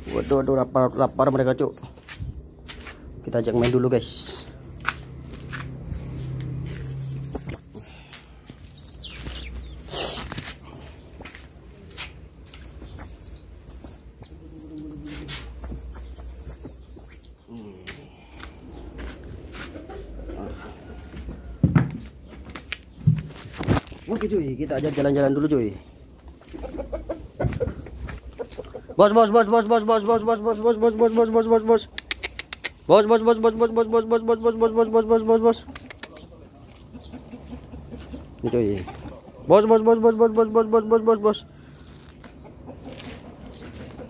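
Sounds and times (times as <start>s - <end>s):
baby otters chirping and squeaking: 0.0s - 2.6s, 3.2s - 17.5s, 35.9s - 36.3s, 41.5s - 42.1s
sandal footsteps on concrete: 1.2s - 13.4s, 21.1s - 25.2s.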